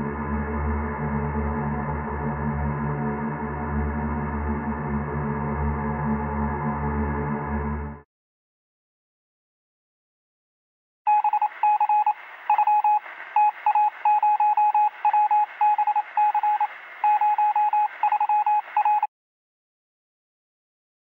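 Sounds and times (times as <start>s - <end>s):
thin radio hiss: 11.1s - 19.0s
morse code beeps: 11.1s - 19.1s.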